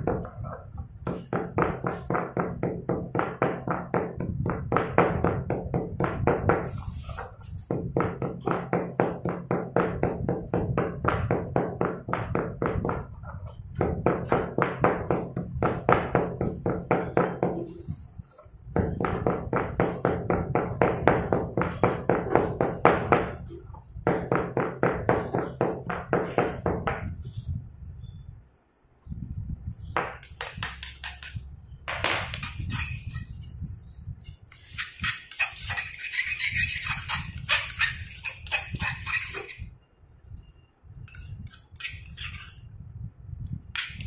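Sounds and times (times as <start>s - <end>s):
stone pestle pounding in mortar: 1.0s - 6.7s, 7.7s - 13.1s, 13.8s - 17.7s, 18.8s - 23.4s.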